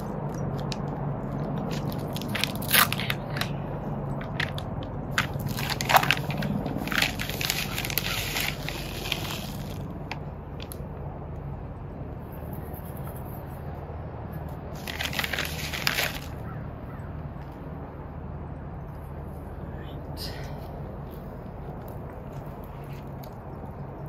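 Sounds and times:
plastic bag crinkling: 1.6 - 3.5, 4.2 - 10.8, 14.8 - 16.4
granules pouring onto soil: 4.3 - 9.9, 14.8 - 16.3.

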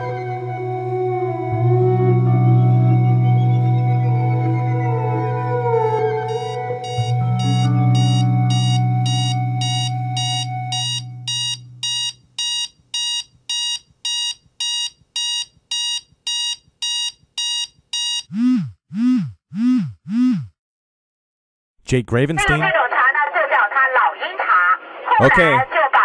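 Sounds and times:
low held tone: 0.0 - 12.0
rising-and-falling electronic tones: 0.4 - 12.1, 18.3 - 20.6
alarm clock beeping: 6.3 - 18.7.

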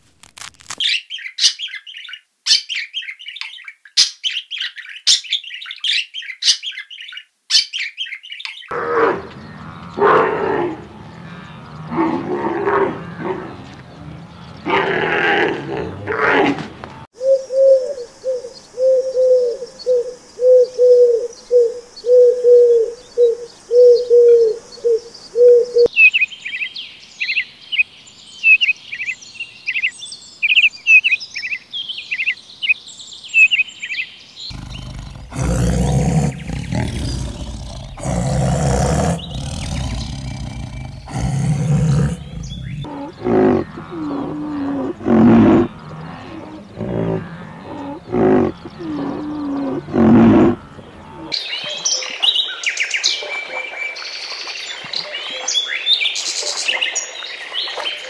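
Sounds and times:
low repeated bird call: 0.9 - 16.2, 16.9 - 53.4
loud low bird calls: 4.0 - 26.6, 34.4 - 53.4
rapid high bird chirping: 34.5 - 44.3.

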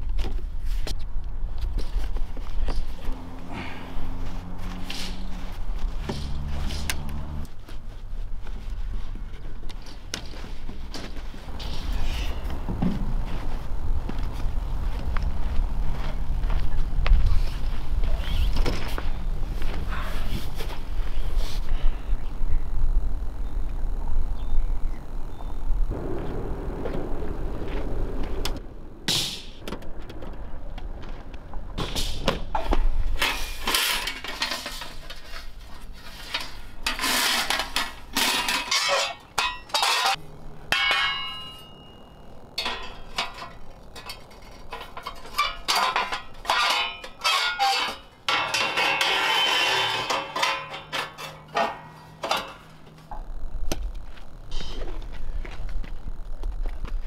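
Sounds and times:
metal scraping: 2.7 - 7.7, 9.8 - 22.1, 31.8 - 53.5
steel plates clanking: 36.2 - 52.8
metallic ring: 38.2 - 52.8.

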